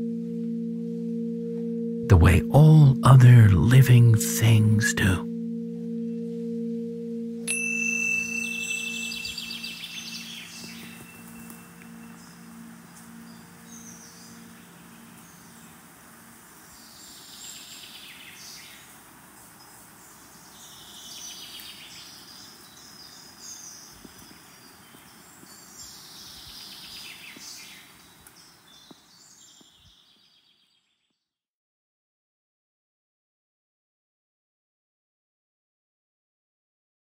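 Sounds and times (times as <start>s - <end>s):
low singing-bowl tone: 0.0s - 3.7s, 5.2s - 18.9s
ambient noise: 0.0s - 25.2s
birds chattering: 8.2s - 16.0s.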